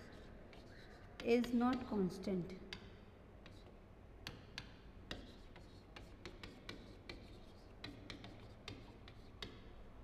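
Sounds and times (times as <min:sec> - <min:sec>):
chalk tapping on chalkboard: 0:00.0 - 0:01.9, 0:02.7 - 0:09.8.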